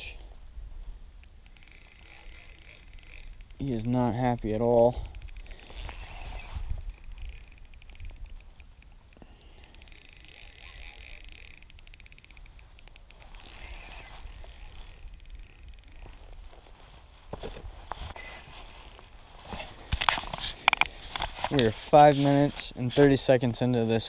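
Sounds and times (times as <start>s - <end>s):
fishing reel clicking rapidly: 1.2s - 20.8s.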